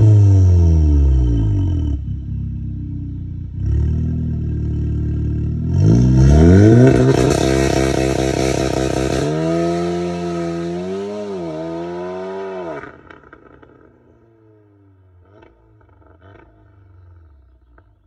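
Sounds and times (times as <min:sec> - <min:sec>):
car accelerating hard: 0:05.5 - 0:13.6.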